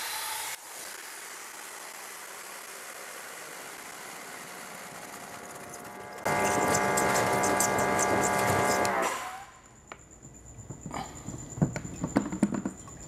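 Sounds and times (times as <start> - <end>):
pressure washer spraying water: 6.3 - 9.3.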